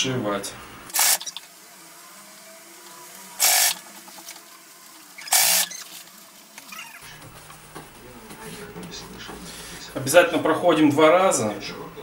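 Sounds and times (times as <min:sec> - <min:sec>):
electric sewing machine running: 0:00.9 - 0:01.4, 0:03.1 - 0:06.1.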